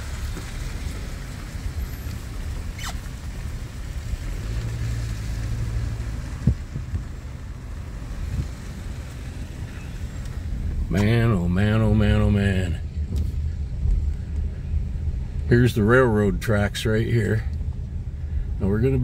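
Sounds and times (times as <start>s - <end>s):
car rumbling on wet road: 0.0s - 19.0s
short falling squeak: 2.8s - 3.1s.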